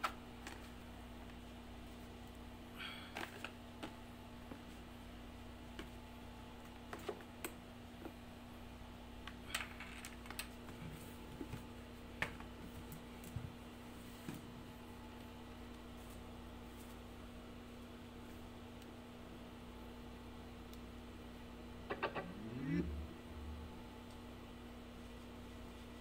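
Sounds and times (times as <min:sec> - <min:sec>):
air conditioner hum: 0:00.0 - 0:26.0.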